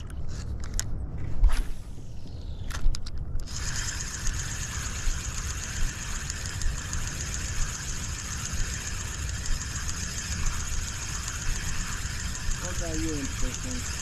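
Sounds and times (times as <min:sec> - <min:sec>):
fishing reel whirring: 0:03.4 - 0:14.0.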